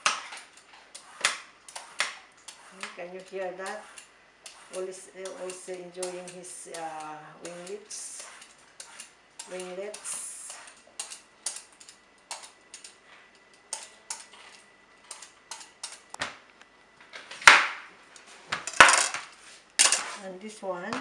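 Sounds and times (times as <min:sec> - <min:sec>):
peeler scraping melon skin: 0:00.0 - 0:13.0.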